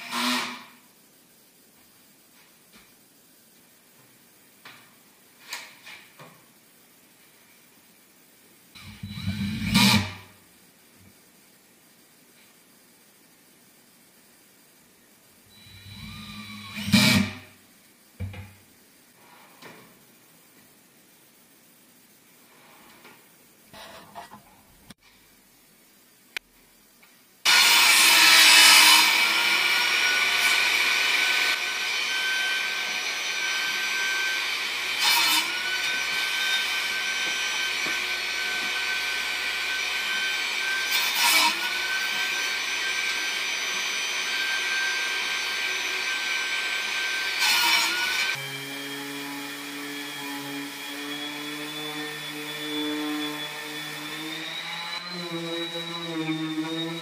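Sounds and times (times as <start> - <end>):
table saw blade whine: 27.5 - 57.0.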